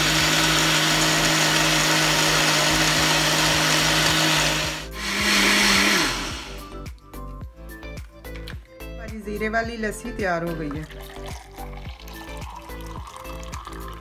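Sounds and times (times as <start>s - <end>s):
blender motor running: 0.0s - 6.7s.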